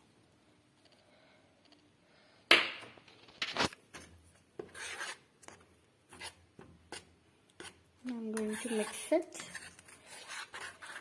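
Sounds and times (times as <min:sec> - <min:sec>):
metal spoon scraping a saucepan: 0:04.6 - 0:05.2, 0:07.6 - 0:11.0.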